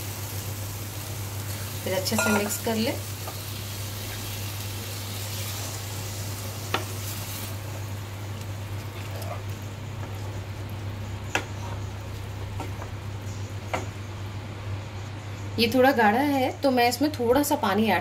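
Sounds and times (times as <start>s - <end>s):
spatula stirring sizzling masala: 0.0s - 14.2s.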